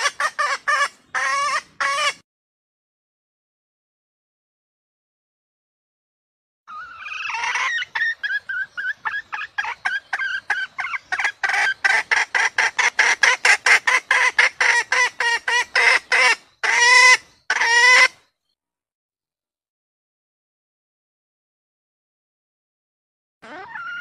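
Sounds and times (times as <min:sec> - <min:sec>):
hen clucking: 0:00.0 - 0:02.2, 0:06.7 - 0:18.2.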